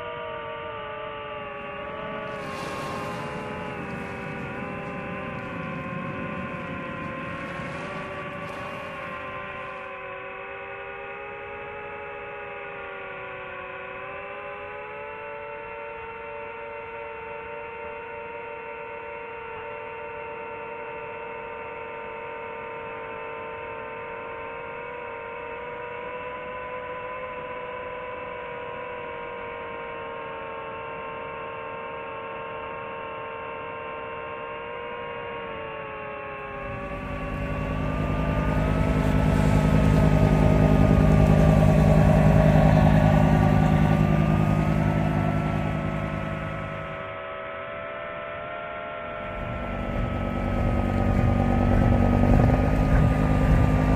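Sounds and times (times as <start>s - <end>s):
drone motors whining: 1.6s - 10.0s, 36.4s - 47.0s, 49.1s - 53.9s
motorboat engine: 1.6s - 10.0s, 36.4s - 47.0s, 49.1s - 53.9s.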